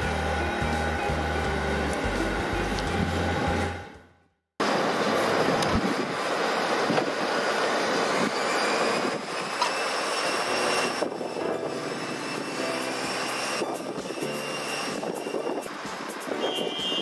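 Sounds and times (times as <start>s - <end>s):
jet engine whine: 4.6s - 17.0s.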